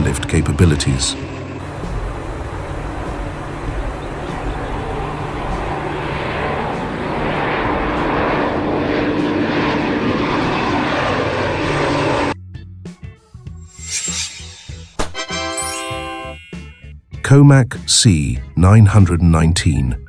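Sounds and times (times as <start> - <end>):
turboprop aircraft droning: 0.0 - 12.4.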